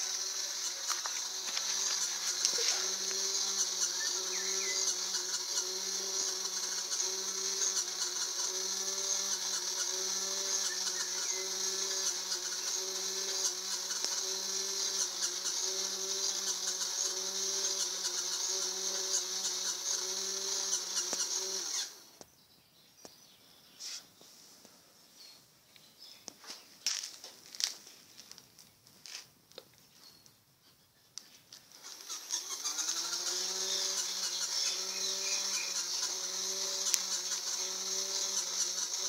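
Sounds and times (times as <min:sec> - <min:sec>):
small electric motor whirring: 0:00.0 - 0:22.2, 0:31.5 - 0:39.0.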